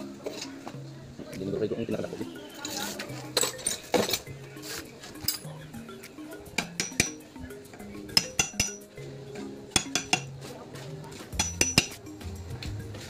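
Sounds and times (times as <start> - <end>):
background music: 0.0 - 13.0
metal parts clinking: 3.4 - 4.3.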